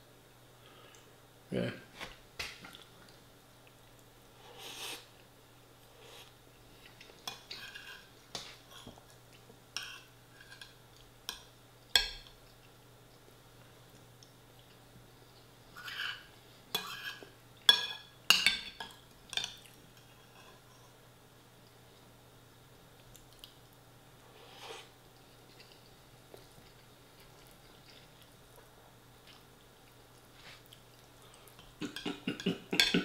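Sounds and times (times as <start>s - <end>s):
cutlery scraping ceramic bowl: 16.8s - 18.5s.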